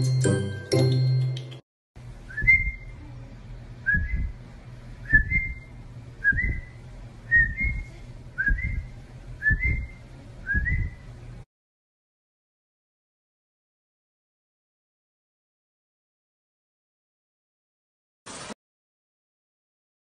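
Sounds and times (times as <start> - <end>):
person whistling rising whistle: 2.3 - 3.0, 3.9 - 4.3, 5.1 - 11.0.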